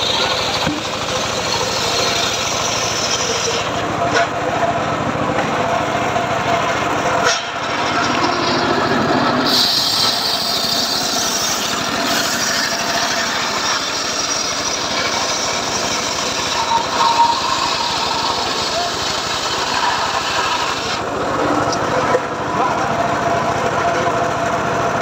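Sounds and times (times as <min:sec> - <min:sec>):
circular sawmill cutting log: 0:00.0 - 0:25.0
engine running: 0:00.0 - 0:25.0.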